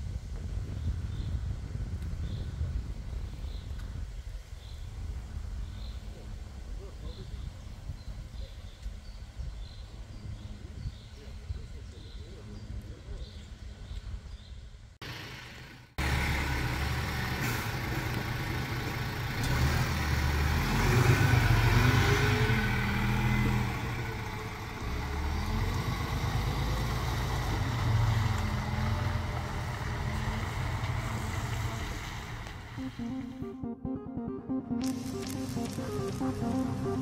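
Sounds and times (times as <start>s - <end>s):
road noise: 0.0s - 33.6s, 34.7s - 37.0s
bus engine revving: 15.0s - 33.5s.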